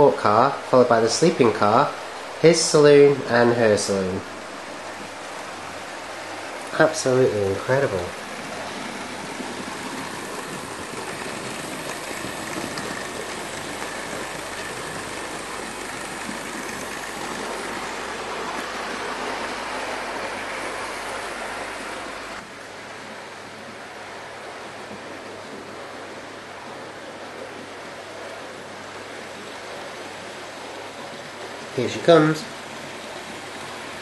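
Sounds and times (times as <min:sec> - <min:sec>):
model train whirring rumble: 0:00.0 - 0:22.6.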